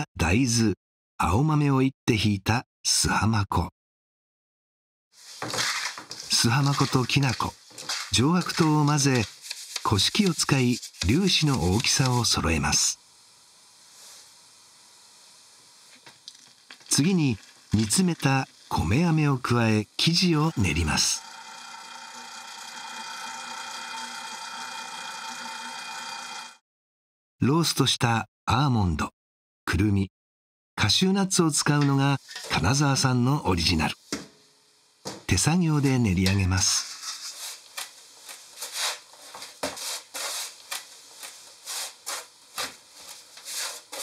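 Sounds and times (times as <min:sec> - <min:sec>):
hands kneading crumbly dough: 0:05.2 - 0:12.4, 0:35.8 - 0:44.0
stand mixer motor humming: 0:20.6 - 0:26.6.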